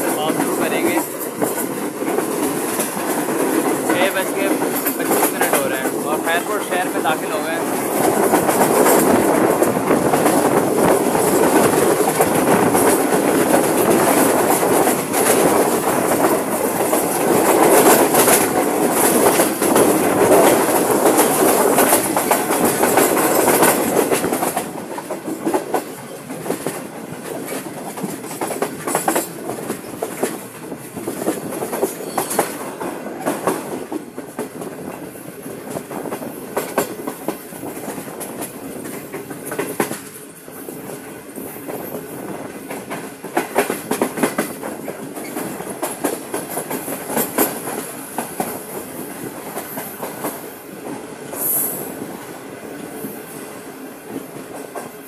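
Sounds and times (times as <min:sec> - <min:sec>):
train wheels clattering over rails: 0:00.0 - 0:55.0.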